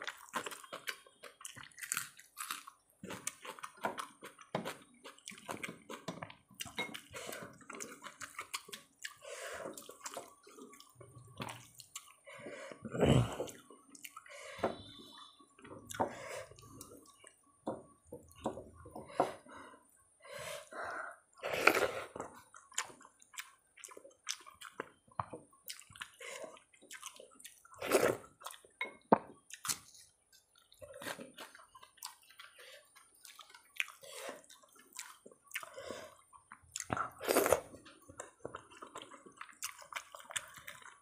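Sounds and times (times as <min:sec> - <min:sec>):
chewing and lip smacks: 0:30.6 - 0:37.1.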